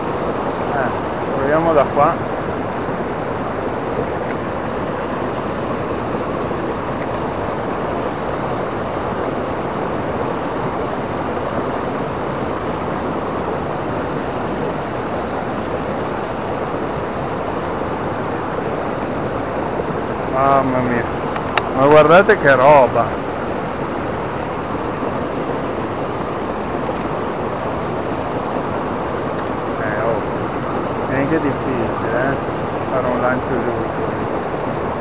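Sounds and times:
water rushing over rocks: 0.0 - 35.0.

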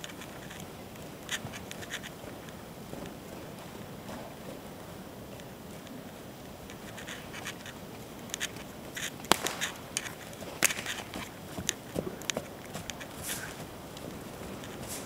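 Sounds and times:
horse hooves trotting on sand: 0.0 - 15.0.

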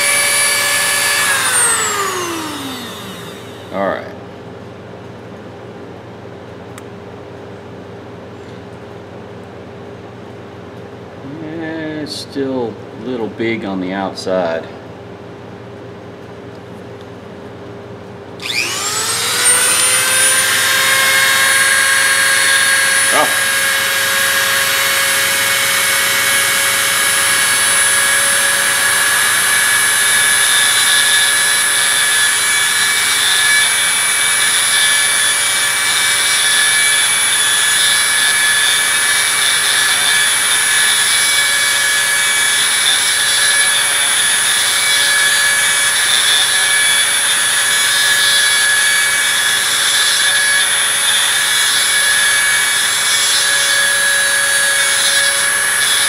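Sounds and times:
rotary tool grinding steel: 0.0 - 3.8, 18.4 - 56.0.

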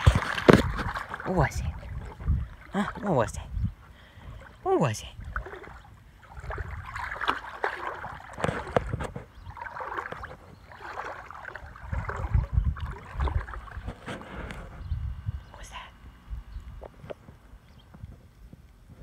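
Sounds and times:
dog splashing in shallow water: 0.0 - 14.1.

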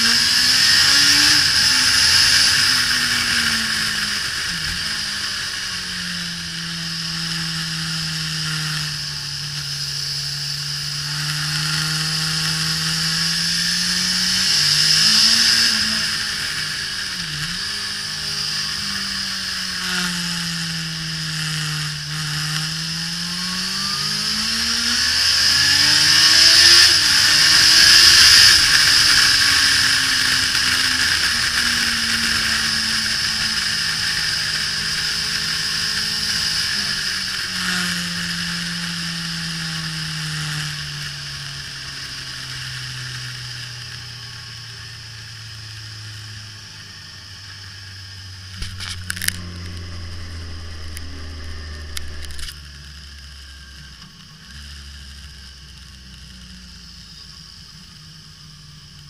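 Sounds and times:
motorcycle engine revving: 0.0 - 59.0
sharp clicks: 48.6 - 52.6.

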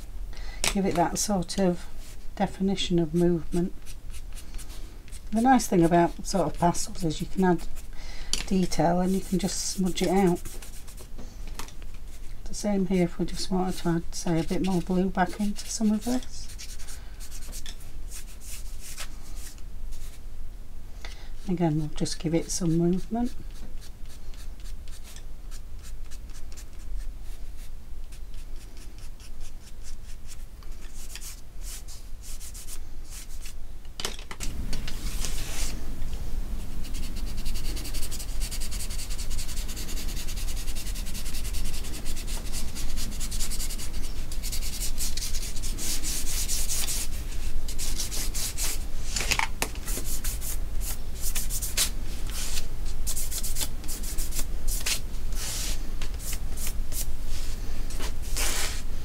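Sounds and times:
pencil scratching on card: 8.6 - 11.0, 36.8 - 47.1.

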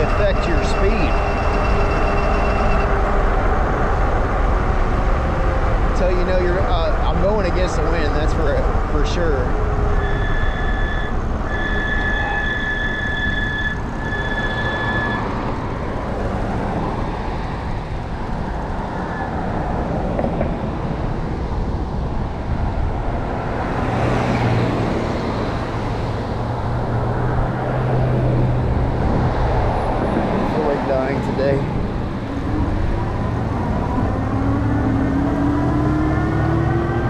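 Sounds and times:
steady high tone: 0.0 - 4.0, 9.9 - 15.4
wind rushing over microphone: 0.0 - 10.5, 13.0 - 37.0
road and traffic noise: 0.0 - 37.0.

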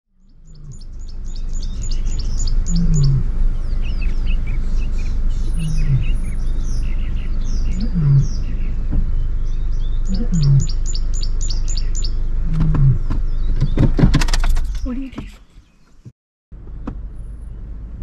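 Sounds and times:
low rumble: 0.2 - 15.2
birds singing and chirping: 0.2 - 16.0
low falling two-part bird call: 1.8 - 3.3, 5.4 - 6.4, 7.6 - 8.6, 10.0 - 13.0.

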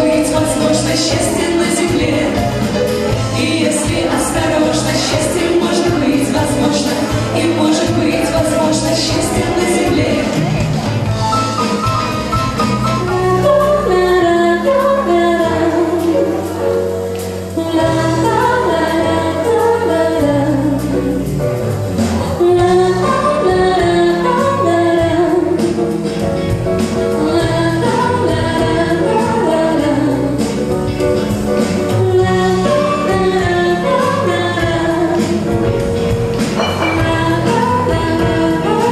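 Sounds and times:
woman singing into microphone: 0.0 - 10.8, 13.0 - 21.3, 22.0 - 26.0, 27.0 - 30.8, 31.9 - 35.9, 36.5 - 38.9
keyboard and band accompaniment: 0.0 - 38.9.

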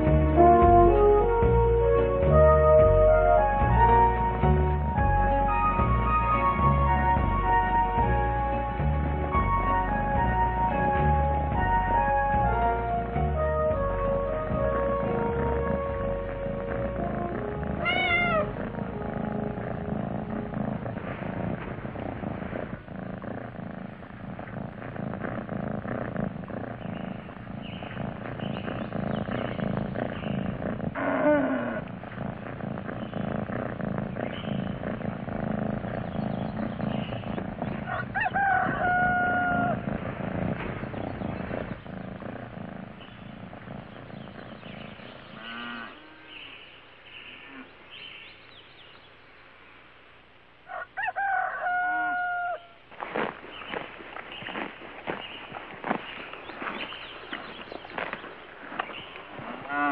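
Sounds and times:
cat purring: 0.0 - 46.7, 53.1 - 59.9
cat drawn-out calls: 17.5 - 19.2.

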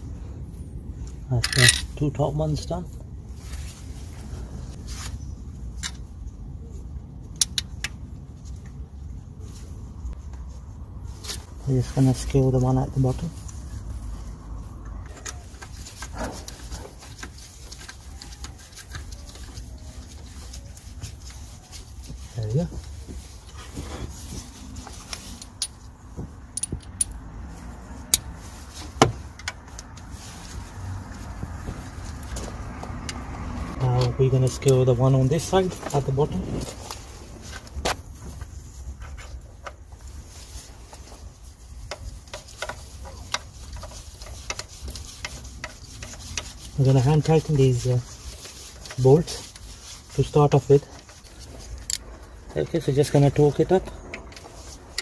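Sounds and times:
metal socket clinking against bolts: 1.4 - 1.9.

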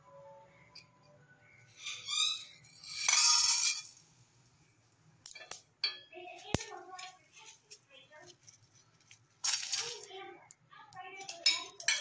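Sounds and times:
seeds clinking on metal: 2.8 - 4.0, 8.4 - 10.3, 11.1 - 12.0
seeds rattling into a pan: 8.4 - 10.2.

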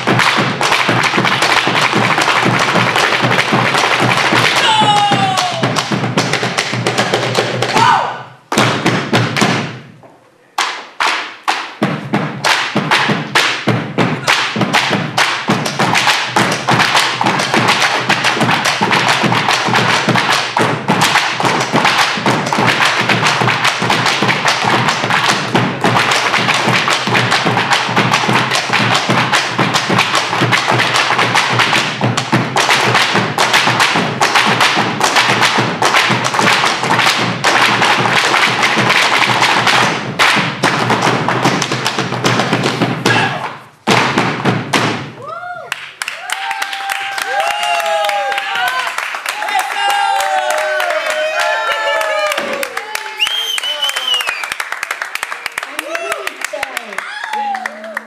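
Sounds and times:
bass drums: 0.0 - 10.0, 11.8 - 45.4
boots stamping on wooden stage: 0.0 - 10.1, 11.8 - 45.2.

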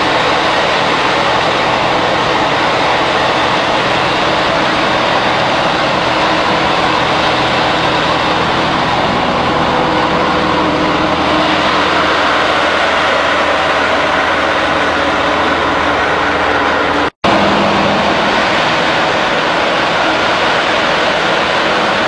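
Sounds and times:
machinery running: 0.0 - 22.0.

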